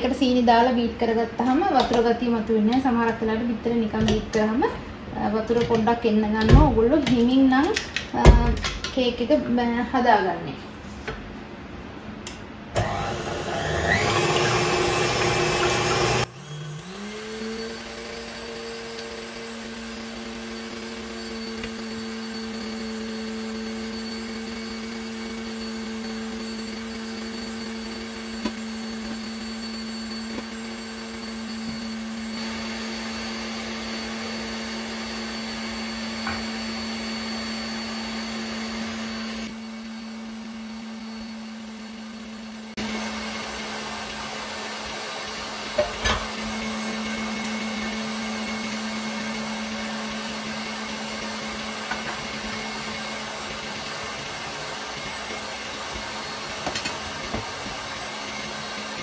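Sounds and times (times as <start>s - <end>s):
stand mixer whisking: 12.8s - 59.0s.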